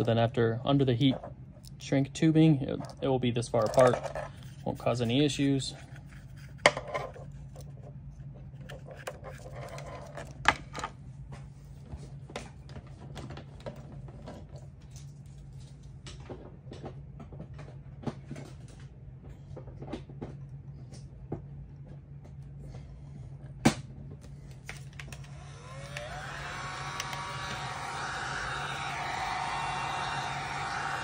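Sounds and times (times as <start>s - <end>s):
steady low hum: 20.6s - 31.0s.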